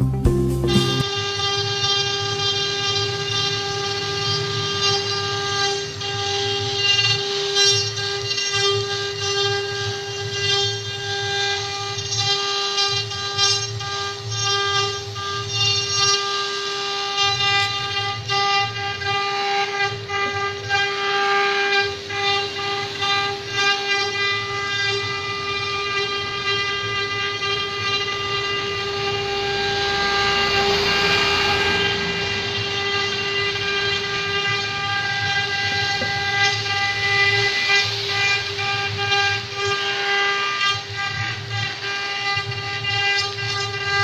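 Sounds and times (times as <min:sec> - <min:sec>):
router spindles whining: 0:01.0 - 0:44.0
cutters cutting wood: 0:17.2 - 0:44.0.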